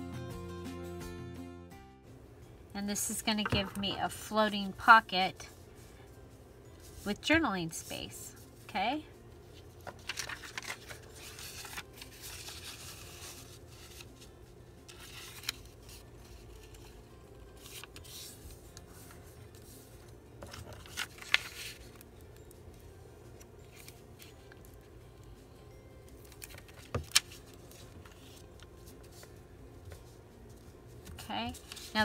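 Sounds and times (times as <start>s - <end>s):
paper folding and creasing: 9.8s - 14.3s, 14.9s - 17.0s, 17.6s - 19.8s, 20.4s - 22.1s, 26.3s - 29.4s, 31.1s - 32.0s.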